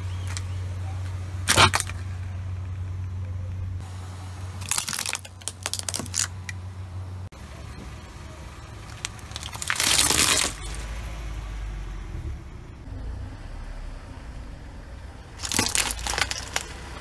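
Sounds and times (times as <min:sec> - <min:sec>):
car engine idling: 0:00.0 - 0:17.0
tyre crushing plastic mouse: 0:01.4 - 0:02.1, 0:04.6 - 0:06.6, 0:08.9 - 0:10.8, 0:15.4 - 0:17.0
loud short crackle: 0:04.6 - 0:06.6, 0:08.9 - 0:10.9, 0:15.4 - 0:16.9.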